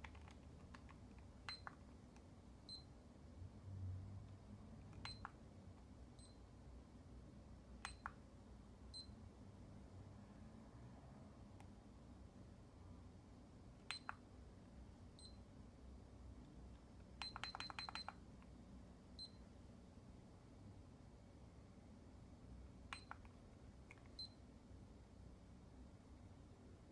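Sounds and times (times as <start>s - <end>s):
meter button clicks: 7.8s - 8.2s, 13.8s - 14.2s, 22.9s - 23.3s.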